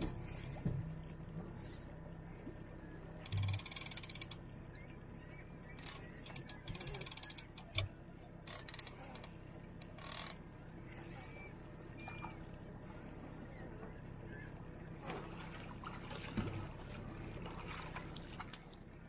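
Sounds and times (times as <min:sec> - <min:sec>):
fishing reel drag ratcheting: 0:03.2 - 0:04.4, 0:05.8 - 0:07.9, 0:08.5 - 0:09.3, 0:10.0 - 0:10.4.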